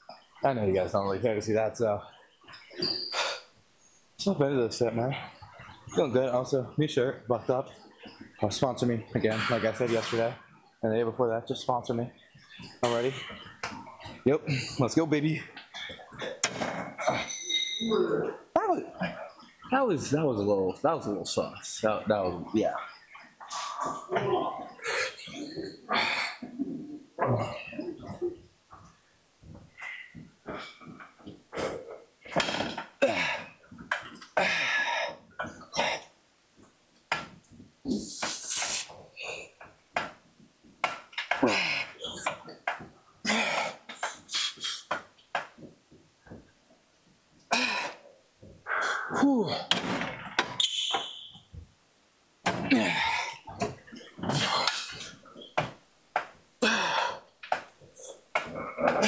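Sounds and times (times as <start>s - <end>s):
man grunting and exhaling hard: 33.0s - 33.6s, 43.2s - 43.8s, 47.5s - 48.0s, 48.7s - 49.7s, 52.6s - 53.4s, 56.6s - 57.3s
man grunting and breathing hard: 52.7s - 53.4s, 56.6s - 57.3s.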